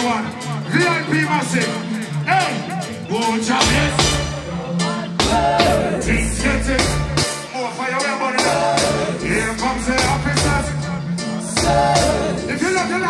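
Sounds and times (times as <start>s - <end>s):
man singing into microphone: 0.0s - 13.0s
reggae band playing: 0.0s - 13.0s.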